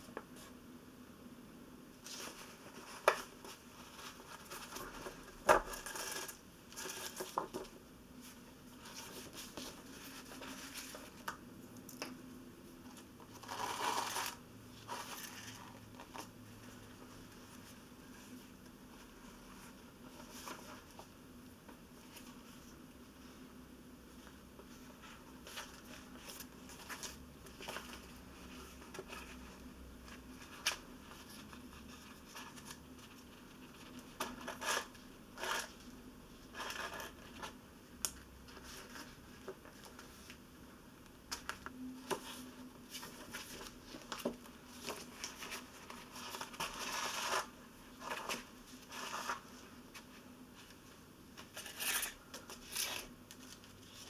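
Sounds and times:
paper rustling and scratching: 2.0 - 11.3, 13.2 - 21.1, 24.7 - 35.9, 41.3 - 50.1, 51.4 - 54.0.

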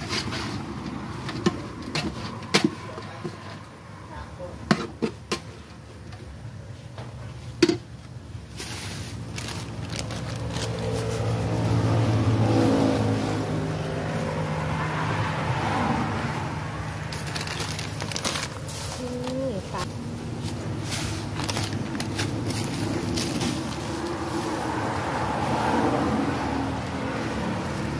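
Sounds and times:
vehicle engine passing by: 9.4 - 17.9, 18.6 - 27.9.

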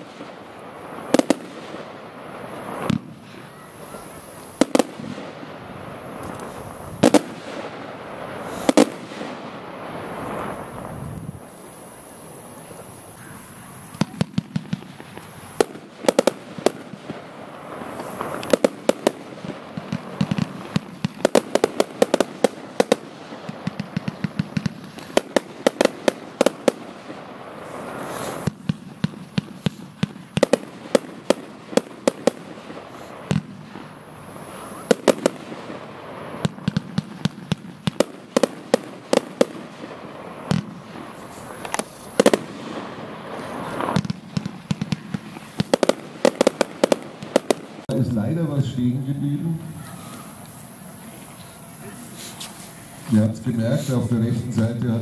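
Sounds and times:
fireworks shots and bursts: 0.0 - 55.0.

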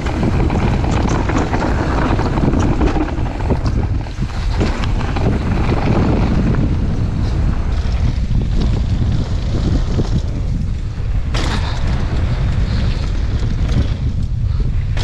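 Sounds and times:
sharp clatter: 0.0 - 6.7
bike tyres rattling on gravel: 0.0 - 15.0
wind noise on microphone: 0.0 - 15.0.

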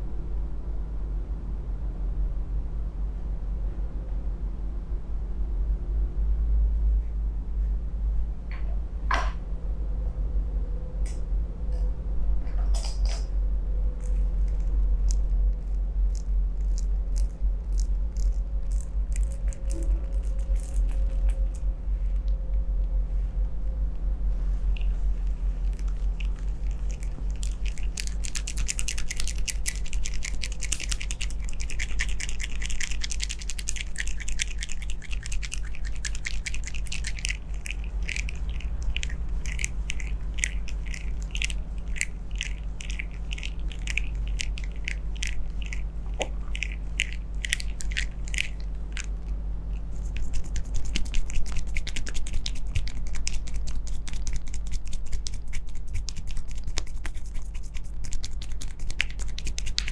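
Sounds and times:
steady low hum: 0.0 - 59.9
palms rubbing over hair: 24.3 - 49.1, 49.8 - 59.9.

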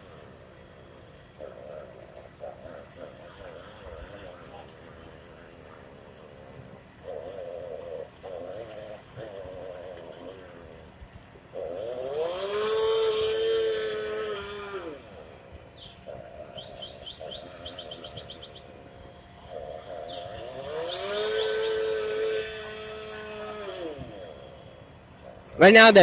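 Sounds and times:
steady drone: 0.0 - 26.0
bird chirping trill: 15.8 - 18.8
power saw cutting: 20.4 - 24.6.

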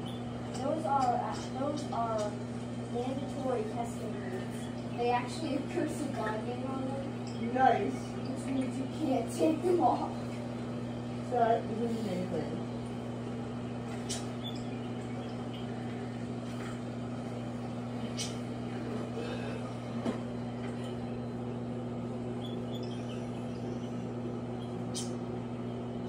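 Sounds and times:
microwave oven humming: 0.0 - 26.0.

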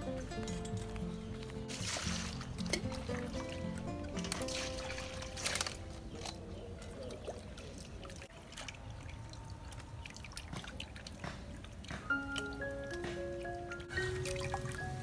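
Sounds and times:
background music: 0.0 - 6.5, 12.1 - 15.0
water trickling and pouring: 0.1 - 15.0
light knocks and drips: 8.5 - 14.8.

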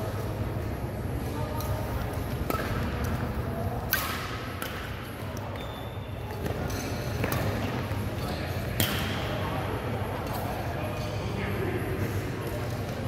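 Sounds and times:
rackets striking shuttlecock: 1.6 - 5.6, 6.3 - 9.4
shoes squeaking on court floor: 5.2 - 8.8.

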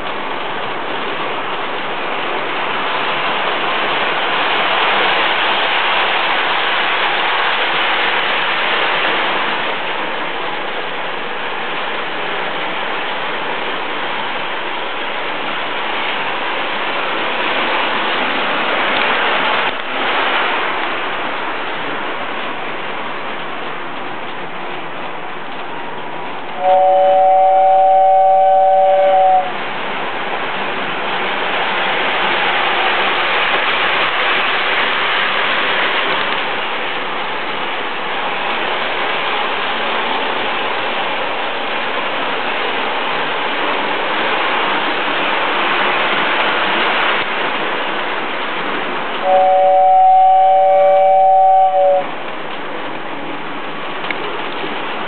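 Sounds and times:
two-note train whistle: 26.6 - 29.6, 49.2 - 52.1.

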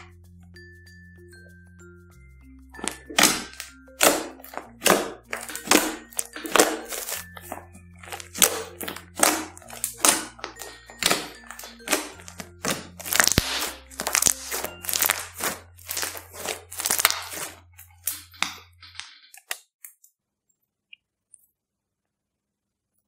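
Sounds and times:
light background music: 0.0 - 19.0
slime crackling and popping: 2.8 - 19.6.

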